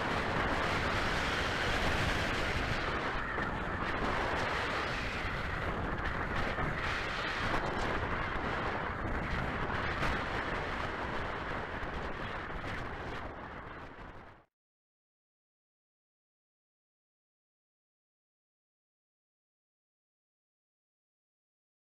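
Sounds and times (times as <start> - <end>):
wind buffeting microphone: 0.0 - 14.4.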